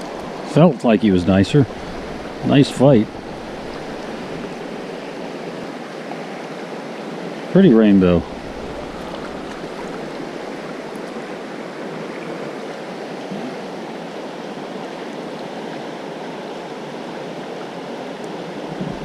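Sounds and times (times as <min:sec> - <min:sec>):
river rushing over rocks: 0:00.0 - 0:19.0.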